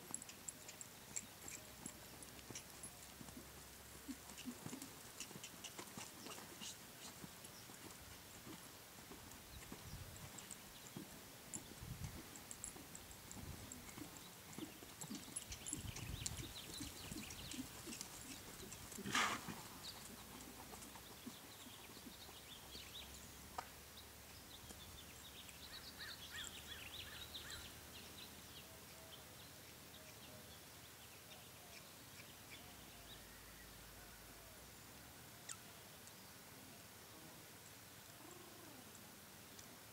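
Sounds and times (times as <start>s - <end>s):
horse hoofbeats on sand: 0.2s - 23.1s.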